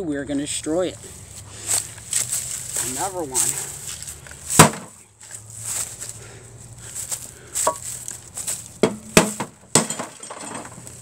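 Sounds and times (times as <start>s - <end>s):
hatchet striking television: 4.6s - 4.9s, 8.8s - 10.2s.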